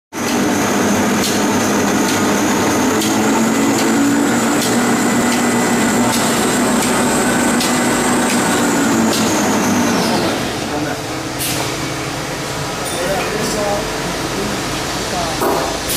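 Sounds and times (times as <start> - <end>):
paper rewinding machine running: 0.2 - 11.1.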